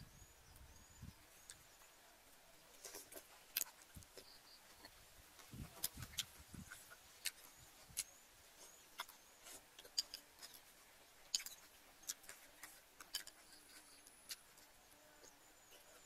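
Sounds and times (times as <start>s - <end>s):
person eating soup: 8.7s - 10.7s, 11.3s - 14.6s.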